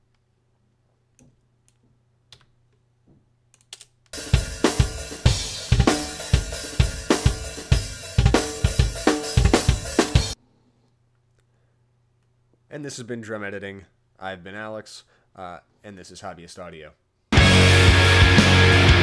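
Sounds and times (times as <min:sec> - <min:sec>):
acoustic drum kit beat: 0:04.2 - 0:10.4, 0:17.4 - 0:19.0.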